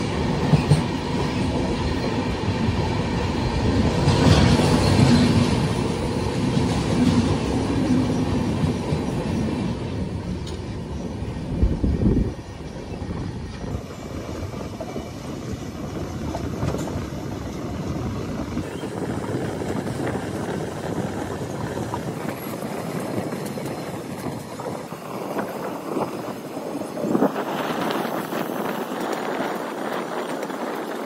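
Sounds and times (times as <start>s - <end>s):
passenger train rumbling: 0.0s - 31.0s.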